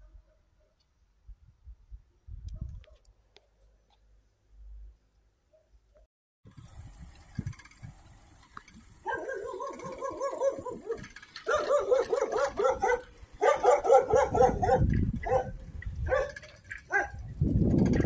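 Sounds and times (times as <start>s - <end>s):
dog barking: 9.0s - 17.2s.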